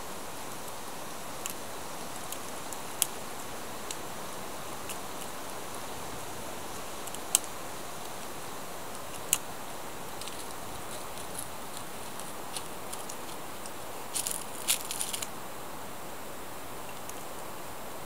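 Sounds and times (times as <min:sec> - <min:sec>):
steady outdoor hiss: 0:00.0 - 0:18.0
twigs and leaves crackling: 0:06.7 - 0:15.4.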